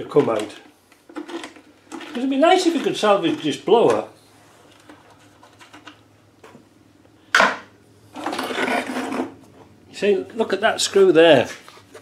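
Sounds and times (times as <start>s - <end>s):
scraping on metal bench: 8.2s - 9.4s.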